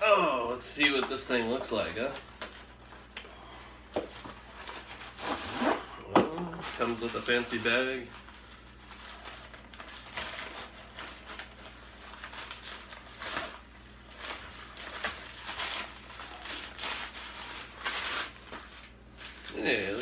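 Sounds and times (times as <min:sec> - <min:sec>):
plastic wrapping crinkling: 0:06.5 - 0:20.0.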